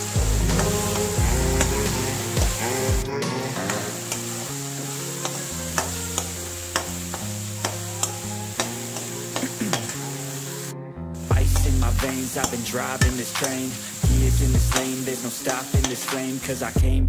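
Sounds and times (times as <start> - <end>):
beans sizzling in hot oil: 0.0 - 16.8
instrumental background music: 0.0 - 17.0
metal spatula scraping a pan: 3.5 - 10.6.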